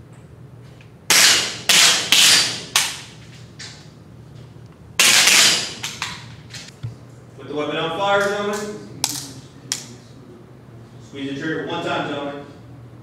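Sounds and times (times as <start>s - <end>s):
air rifles firing: 1.1s - 3.1s, 5.0s - 6.3s.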